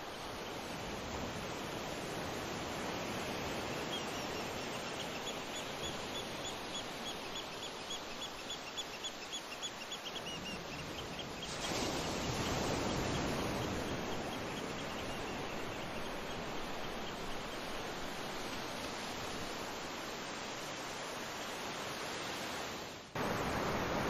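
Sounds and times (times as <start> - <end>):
river rushing: 15.4 - 24.0.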